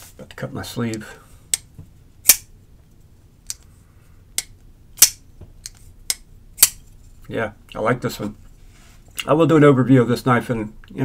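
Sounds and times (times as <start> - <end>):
folding knife metallic clicks: 1.5 - 2.5.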